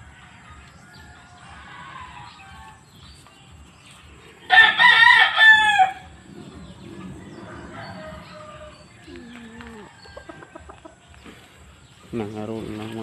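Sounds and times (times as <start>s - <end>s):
rooster crowing: 4.5s - 10.8s.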